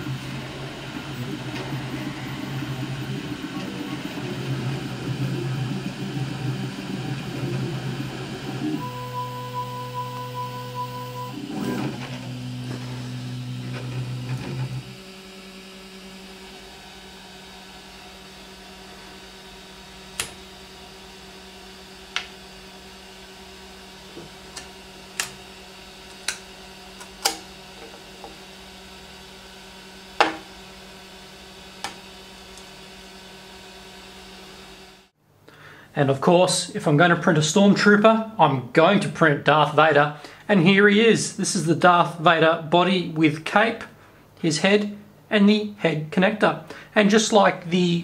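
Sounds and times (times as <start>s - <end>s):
stepper motors whining: 0.0s - 35.1s
fan hum: 0.0s - 48.0s.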